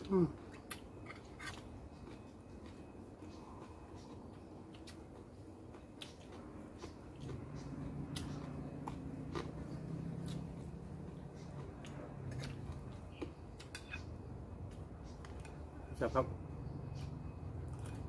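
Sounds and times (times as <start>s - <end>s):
chewing: 0.0s - 15.7s, 17.0s - 18.0s
low hum: 0.0s - 18.0s.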